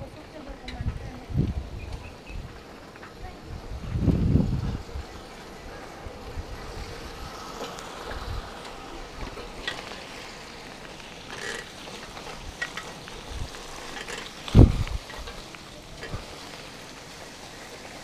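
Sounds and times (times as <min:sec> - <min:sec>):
wind buffeting microphone: 0:00.0 - 0:09.6, 0:12.3 - 0:16.4.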